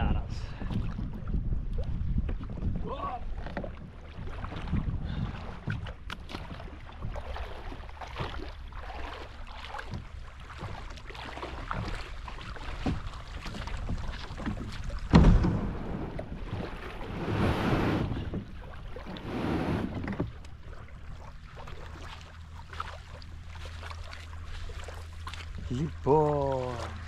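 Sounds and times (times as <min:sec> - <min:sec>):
wind on microphone: 0:00.0 - 0:07.4, 0:13.0 - 0:20.3
loud thump: 0:15.1 - 0:16.3.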